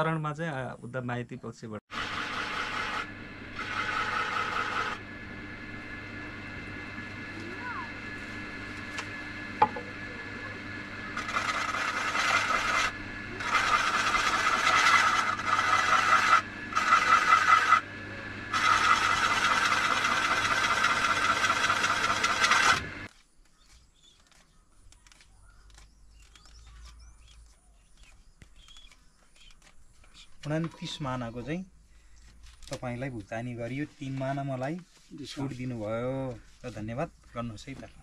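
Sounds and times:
tool scraping turning wood: 1.9 - 5.0, 11.1 - 17.9, 18.5 - 31.4
wood lathe humming: 1.9 - 23.1.

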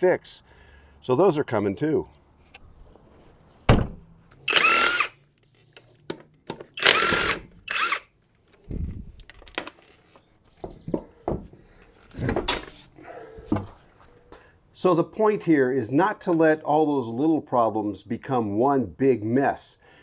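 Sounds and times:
dull thumps: 3.7 - 4.0
impact wrench bursts: 4.5 - 5.2, 6.7 - 8.1.

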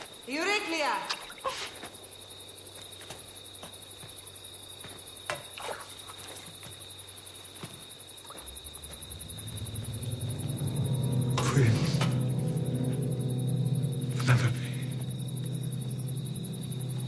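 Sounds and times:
crickets chirping: 0.0 - 17.0
low music tone: 8.7 - 17.0.

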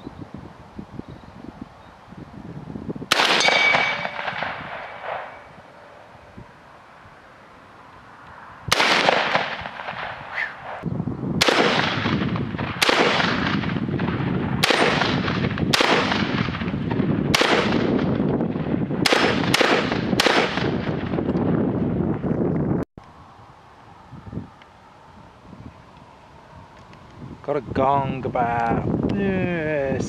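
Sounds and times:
shotgun shots echoing: 3.1 - 6.0, 8.7 - 10.8, 11.4 - 18.1, 19.0 - 21.1.

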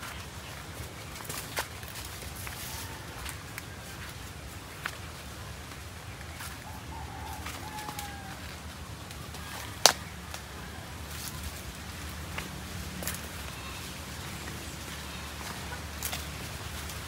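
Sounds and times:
footsteps on leafy dirt path: 0.0 - 17.0
faint bird calls: 6.0 - 11.6, 13.0 - 16.6
twig snapping underfoot: 9.3 - 10.5.

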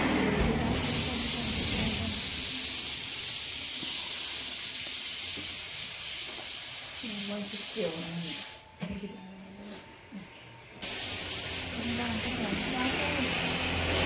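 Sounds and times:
steady high hiss: 0.7 - 8.7.

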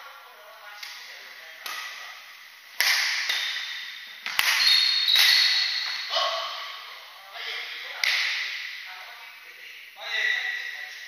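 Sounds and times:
racket striking shuttlecock: 2.7 - 6.1
shoes squeaking on wooden floor: 3.4 - 6.7.

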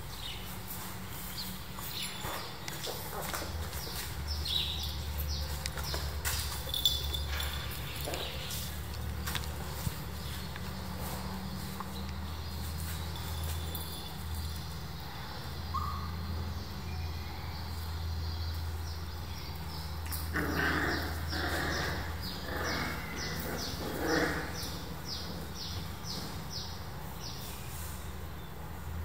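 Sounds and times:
puppies play-fighting: 0.0 - 15.9, 19.6 - 27.4.

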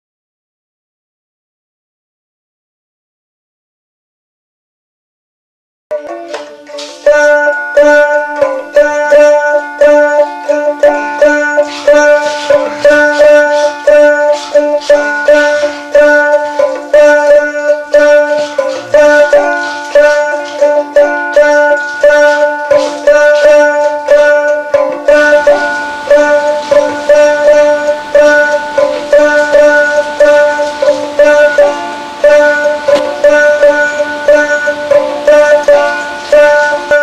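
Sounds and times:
plucked string melody: 5.9 - 37.0
steady held drone: 6.1 - 37.0.

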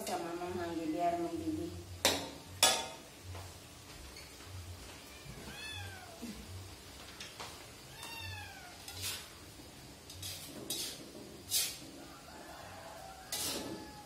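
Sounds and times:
cat meowing: 5.0 - 6.4, 7.9 - 9.0
spatula scraping steel wok: 8.8 - 12.4, 13.2 - 14.0.

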